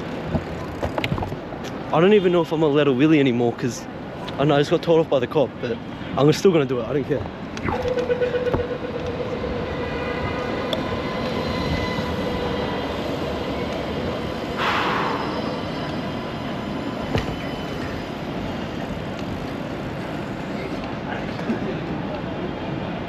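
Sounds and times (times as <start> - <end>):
steady rushing noise: 0.0 - 23.0
tram running on tracks: 0.0 - 23.0
thin whine: 7.5 - 20.9.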